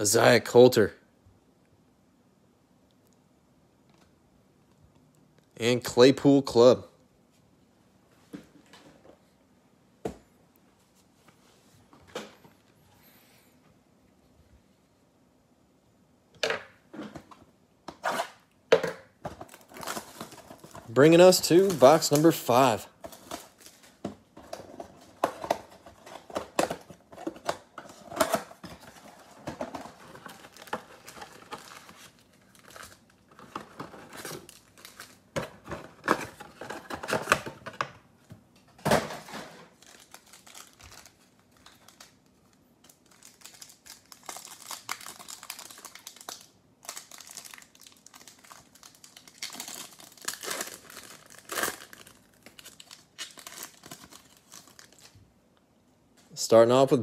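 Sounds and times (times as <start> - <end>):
foil pack crinkling and tearing: 19.4 - 24.0, 28.8 - 35.3, 39.7 - 55.2.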